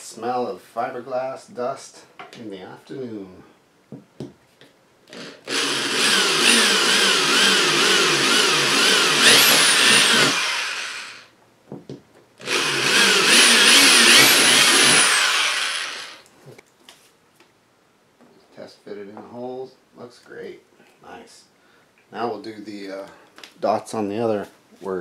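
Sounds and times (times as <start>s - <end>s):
electric drill whining: 5.1s - 11.3s, 12.4s - 16.2s.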